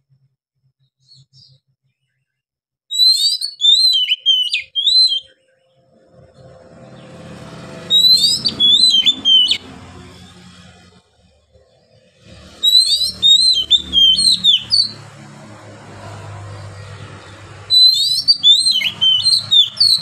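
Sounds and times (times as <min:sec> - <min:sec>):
bird singing whistled notes: 0:02.9 - 0:07.2, 0:07.8 - 0:09.8, 0:12.5 - 0:15.0, 0:17.7 - 0:20.0
low droning rumble: 0:05.8 - 0:19.8.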